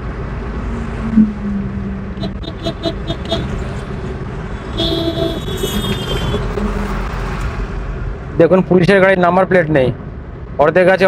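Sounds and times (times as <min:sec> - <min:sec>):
road and engine rumble: 0:00.0 - 0:11.0
long horn blast: 0:00.8 - 0:07.4
short horn beeps: 0:02.2 - 0:04.0, 0:04.7 - 0:07.1.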